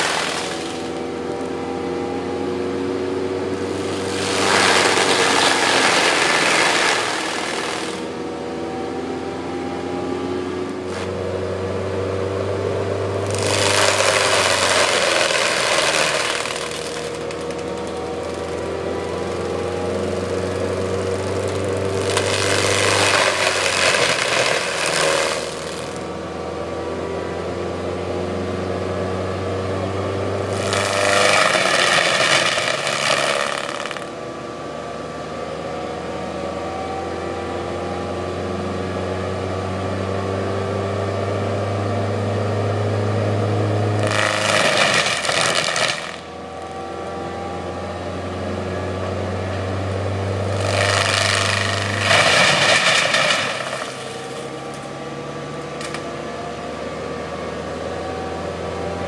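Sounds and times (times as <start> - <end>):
loud wood grinding: 0.0 - 8.4, 10.7 - 11.2, 13.1 - 26.1, 30.4 - 34.2, 43.9 - 47.0, 49.9 - 56.0
grinding head whining: 0.0 - 40.3, 41.4 - 59.0
excavator running: 0.0 - 59.0.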